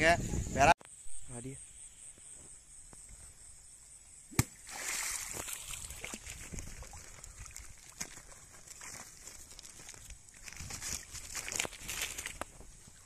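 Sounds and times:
water dripping: 4.4 - 10.1
water splashing and sloshing: 4.4 - 13.0.

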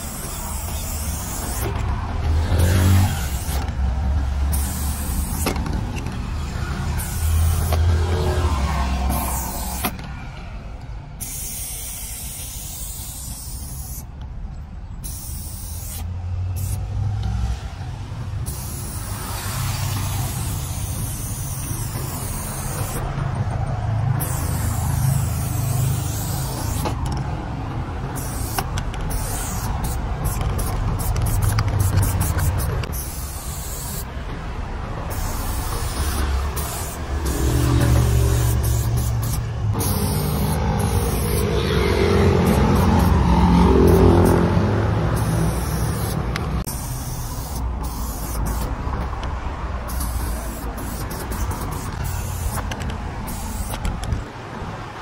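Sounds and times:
spray paint can hissing: 0.0 - 3.8, 4.4 - 5.6, 6.9 - 8.2, 8.9 - 10.0, 11.2 - 14.1, 15.0 - 16.9, 18.4 - 23.1, 24.2 - 27.0, 28.1 - 34.2, 35.0 - 44.4, 45.1 - 49.1, 49.8 - 54.1.

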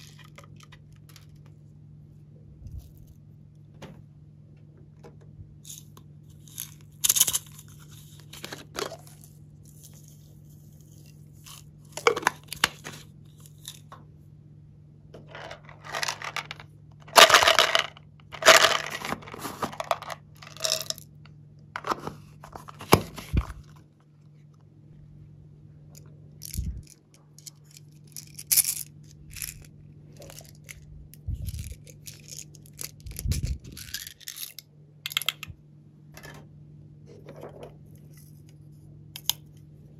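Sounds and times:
plastic containers handled: 7.6 - 10.1, 11.5 - 14.0, 15.1 - 21.0, 21.8 - 23.9, 37.1 - 38.1.

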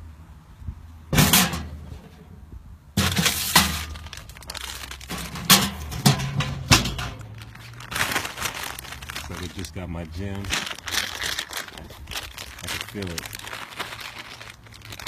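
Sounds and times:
plastic package crinkling: 3.8 - 5.5, 7.1 - 15.0.

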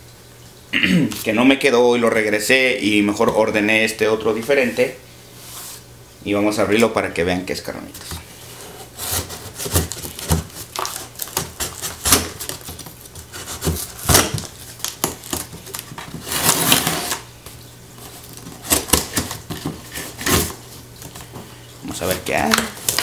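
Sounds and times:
knife slitting packing tape: 9.0 - 17.2, 18.3 - 20.6.

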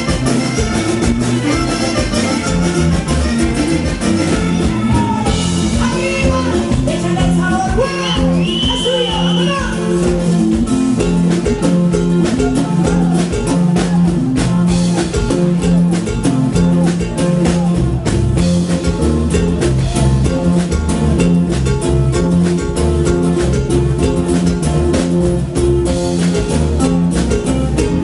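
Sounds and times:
accordion guitar and drum music: 0.0 - 28.0.

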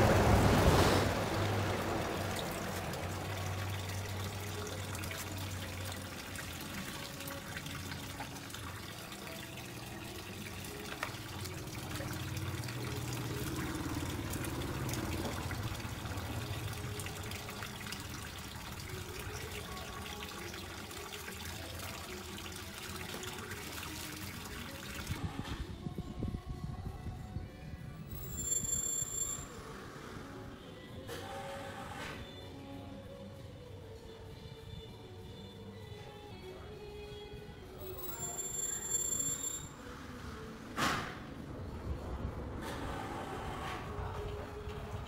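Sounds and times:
water trickling from pipe: 0.0 - 25.2.

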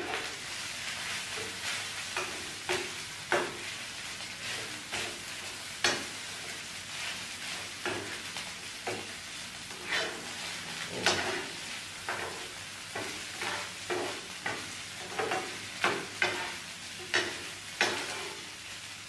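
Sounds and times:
frying pan sizzling: 0.0 - 19.0
metal spoon scraping frying pan: 4.4 - 5.2, 9.7 - 18.5.

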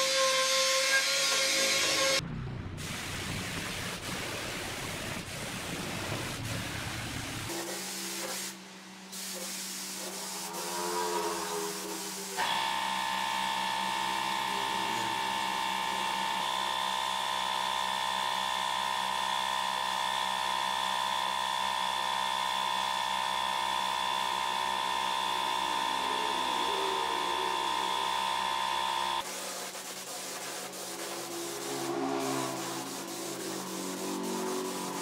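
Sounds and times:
low hum: 2.2 - 3.3
high-pitched air whine: 10.2 - 16.8, 23.2 - 29.2, 30.9 - 35.0.

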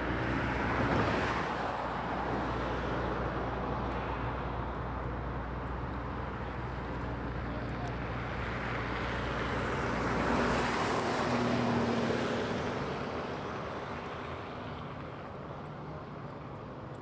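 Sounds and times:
vehicle passing: 6.1 - 15.4.

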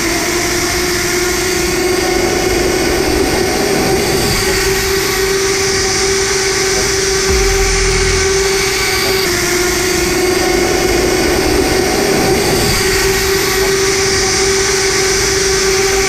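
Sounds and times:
low rumble: 7.3 - 9.3.

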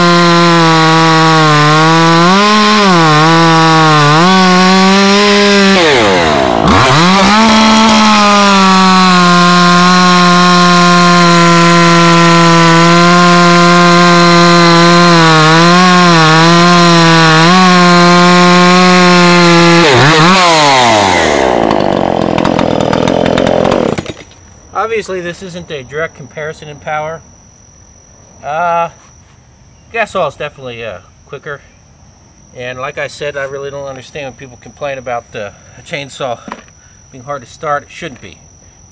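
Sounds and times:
chainsaw cutting through log: 0.0 - 24.3.

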